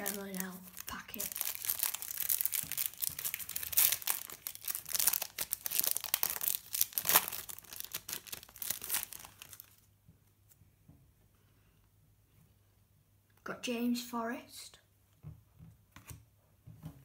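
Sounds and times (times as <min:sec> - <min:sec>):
foil wrapper crinkling: 0:00.0 - 0:09.8.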